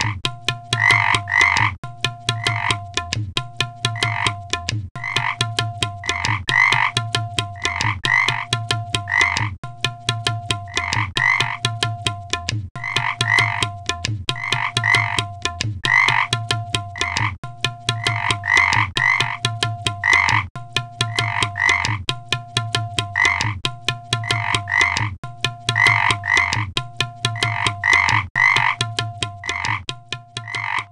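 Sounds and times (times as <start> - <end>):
electronic background music: 0.0 - 3.0, 3.7 - 22.0, 22.6 - 30.9.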